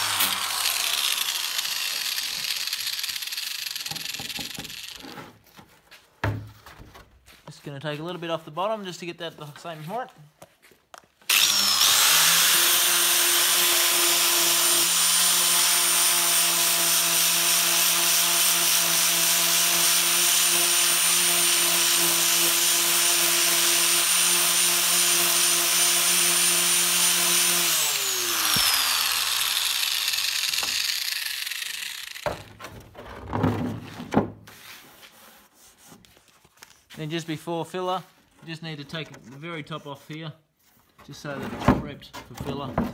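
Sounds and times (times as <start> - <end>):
grinder disc spinning down: 0.0 - 5.0, 11.3 - 15.6, 25.5 - 32.6
angle grinder sanding: 0.0 - 5.1, 11.3 - 32.6.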